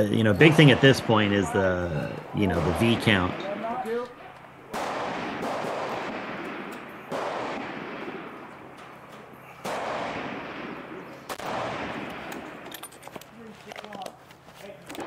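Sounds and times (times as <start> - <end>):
rolling gunshot echo: 0.3 - 12.7
rifle shots: 0.3 - 12.9.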